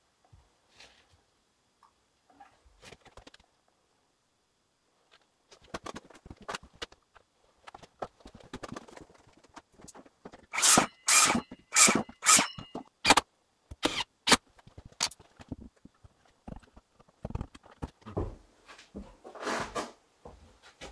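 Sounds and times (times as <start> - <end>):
loud short rasping strokes: 10.5 - 12.9.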